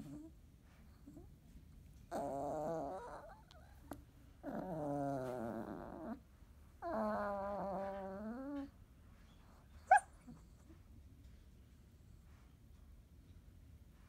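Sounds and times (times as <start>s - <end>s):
puppy whining and groaning: 0.0s - 1.3s, 2.0s - 10.8s.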